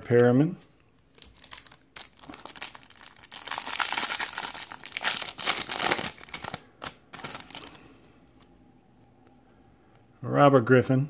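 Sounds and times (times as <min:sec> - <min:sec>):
foil wrapper crinkling and tearing: 0:01.1 - 0:07.9.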